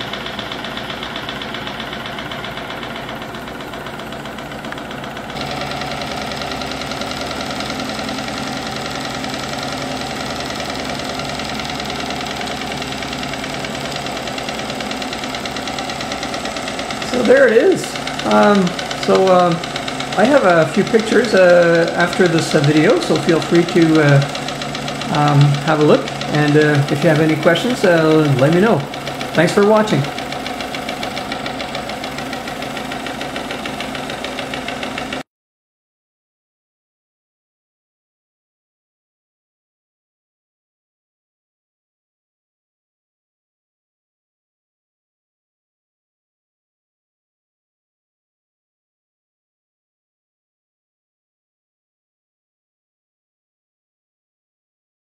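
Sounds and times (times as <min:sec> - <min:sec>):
generator hum: 0:00.0 - 0:35.2
steam engine clatter: 0:00.0 - 0:35.2.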